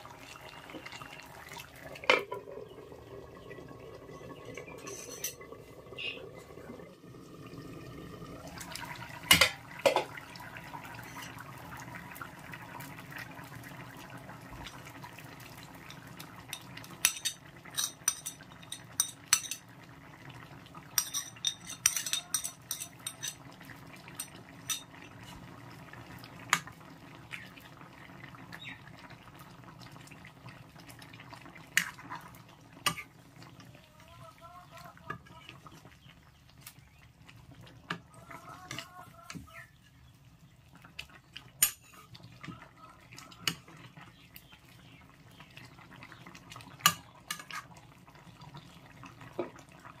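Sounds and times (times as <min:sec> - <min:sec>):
metal ladle scraping and tapping pan: 0:04.8 - 0:05.4, 0:15.9 - 0:19.7, 0:21.0 - 0:23.4, 0:24.2 - 0:25.4, 0:46.8 - 0:47.7
metal lid clanking on pan: 0:09.3 - 0:10.1, 0:21.0 - 0:23.4.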